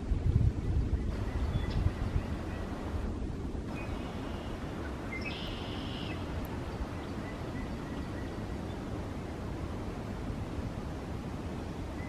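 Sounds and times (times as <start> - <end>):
wind buffeting microphone: 0.0 - 12.0
high trilling bird call: 3.7 - 6.3.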